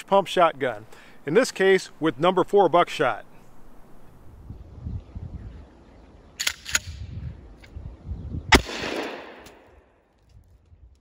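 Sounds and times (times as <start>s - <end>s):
shotgun blast with echo: 8.5s - 9.7s.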